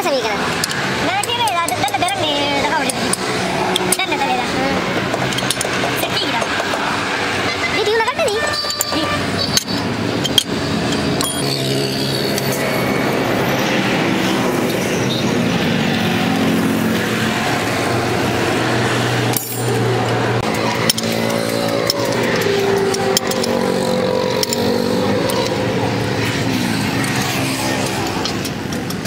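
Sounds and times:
vehicle engines and traffic: 0:00.0 - 0:29.0
lug wrench clicks: 0:00.5 - 0:02.2, 0:05.1 - 0:05.8, 0:08.5 - 0:11.6, 0:20.4 - 0:25.6, 0:27.0 - 0:29.0.

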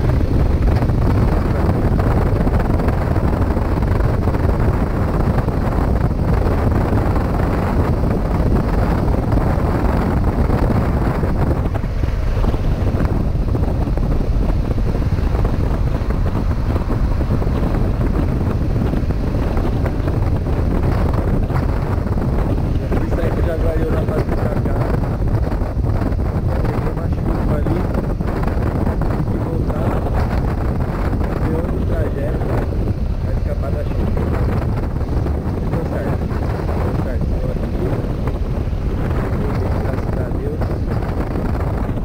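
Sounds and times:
motorcycle engine cruising: 0:00.0 - 0:42.0
wind rushing over microphone: 0:00.0 - 0:42.0.

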